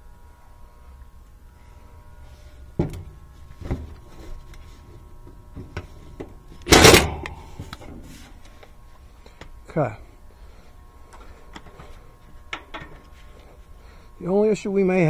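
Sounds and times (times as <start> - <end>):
impact driver burst: 6.6 - 7.9.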